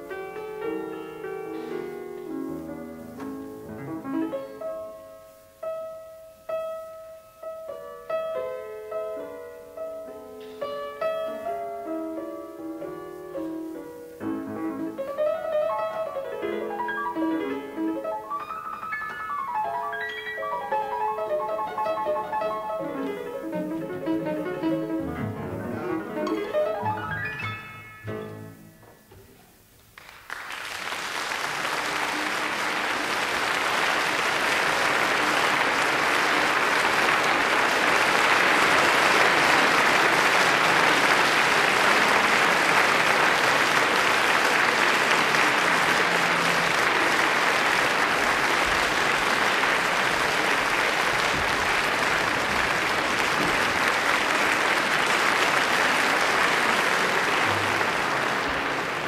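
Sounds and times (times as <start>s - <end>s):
audience applauding: 14.9s - 25.4s, 29.8s - 59.0s.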